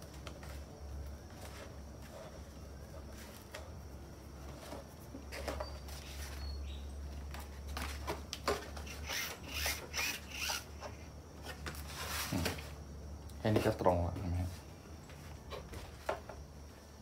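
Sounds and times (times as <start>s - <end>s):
foam rubbing and scraping: 11.8s - 12.6s.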